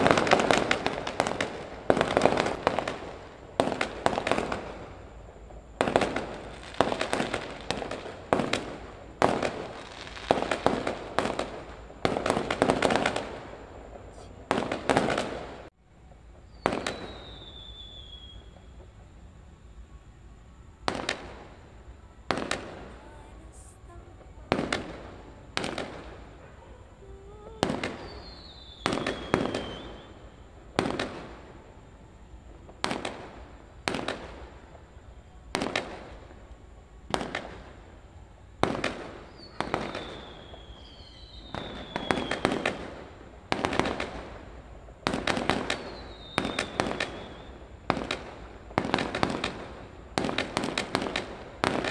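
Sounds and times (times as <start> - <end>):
fireworks bangs: 0.0 - 51.9
high falling whistle: 16.4 - 18.7, 27.0 - 30.4.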